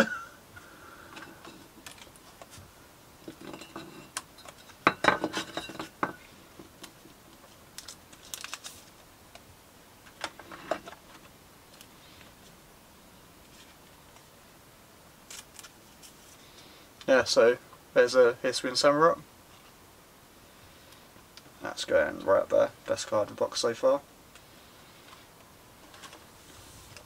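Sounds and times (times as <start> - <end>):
small things clicking and rustling: 1.1 - 12.6, 15.2 - 17.1.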